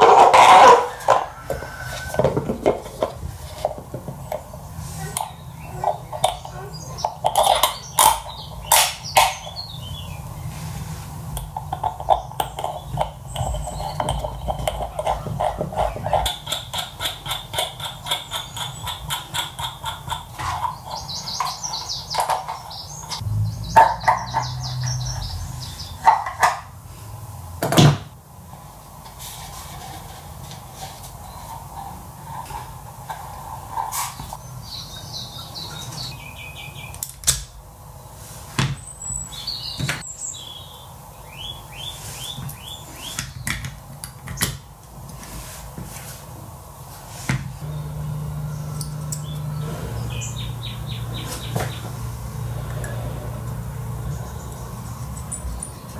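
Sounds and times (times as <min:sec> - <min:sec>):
small bird chirping: 0:12.0 - 0:26.0, 0:47.7 - 0:52.0.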